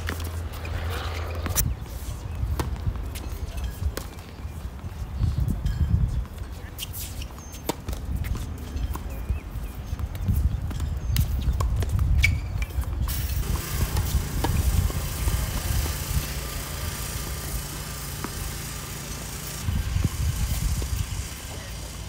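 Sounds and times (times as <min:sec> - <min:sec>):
tennis ball struck and bouncing: 0:00.0 - 0:01.7, 0:09.9 - 0:16.9, 0:18.1 - 0:19.4
wind rumbling on microphone: 0:00.0 - 0:06.6, 0:08.0 - 0:16.7, 0:19.6 - 0:21.8.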